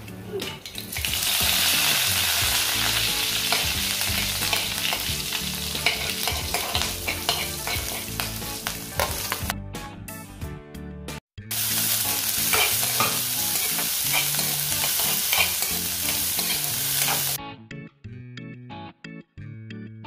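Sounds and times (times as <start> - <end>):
leaves sizzling in hot oil: 0.7 - 9.5, 11.5 - 17.4
ladle scraping pan: 5.8 - 8.1.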